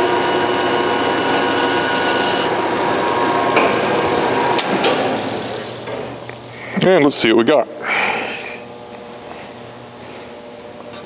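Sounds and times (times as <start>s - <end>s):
bandsaw running: 0.0s - 5.9s.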